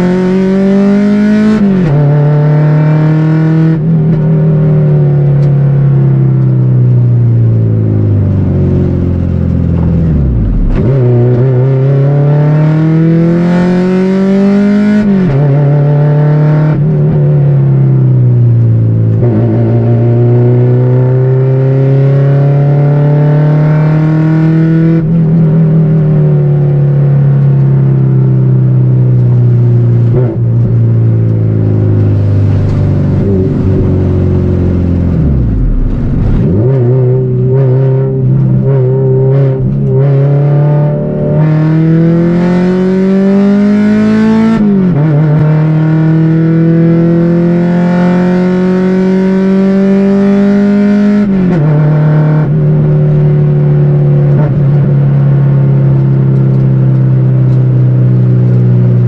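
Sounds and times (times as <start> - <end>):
car engine droning in cabin: 0.0 - 59.0.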